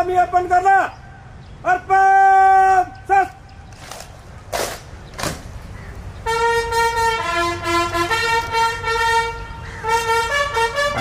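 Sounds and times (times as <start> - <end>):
bugle call: 6.2 - 11.0.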